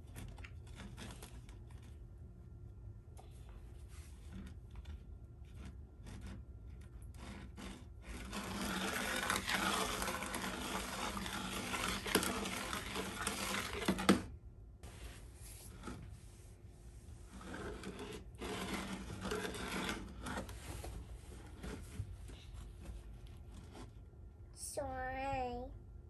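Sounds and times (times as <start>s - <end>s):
plastic spoon scraping slime: 0.0s - 2.1s, 4.1s - 14.3s, 17.0s - 24.1s.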